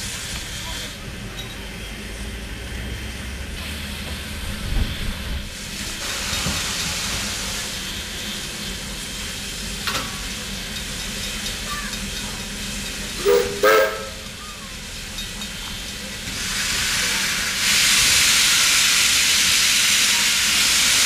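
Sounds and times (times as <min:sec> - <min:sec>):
locomotive hissing steam: 0:00.0 - 0:21.0
steam whistle: 0:13.2 - 0:14.3.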